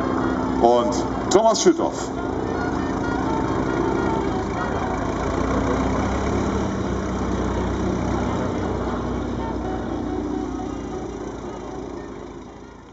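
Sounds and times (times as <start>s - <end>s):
biplane engine droning overhead: 0.0s - 12.9s.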